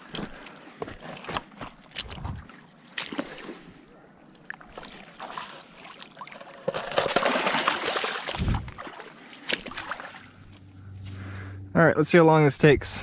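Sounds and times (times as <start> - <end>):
fish splashing in water: 4.5 - 10.3.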